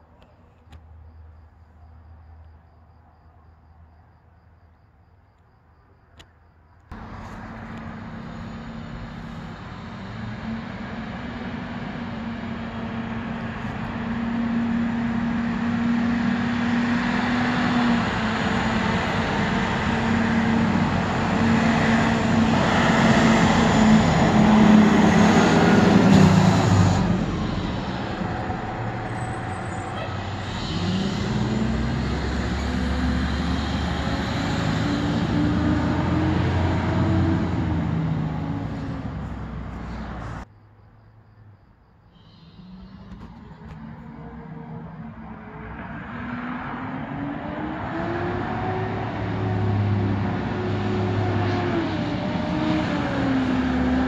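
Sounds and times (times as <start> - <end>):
diesel engine running: 6.9 - 40.4
car passing: 6.9 - 40.5, 42.3 - 54.0.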